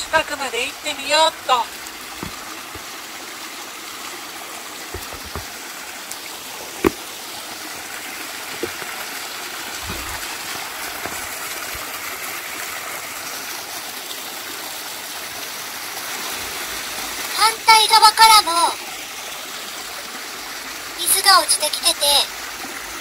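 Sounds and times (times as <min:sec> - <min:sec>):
stream trickling and splashing: 0:00.0 - 0:23.0
light knocks: 0:02.2 - 0:02.9, 0:04.9 - 0:05.5, 0:06.8 - 0:07.0, 0:08.5 - 0:08.9.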